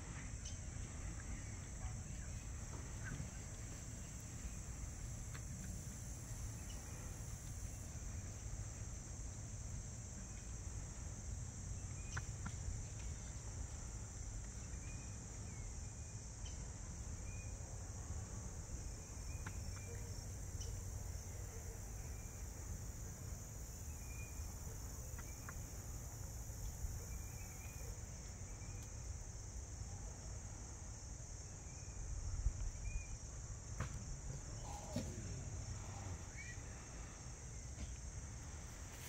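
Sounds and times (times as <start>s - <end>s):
insects droning: 0.0s - 39.0s
faint chirps and ticks: 0.2s - 9.5s, 11.7s - 17.6s, 18.8s - 29.5s.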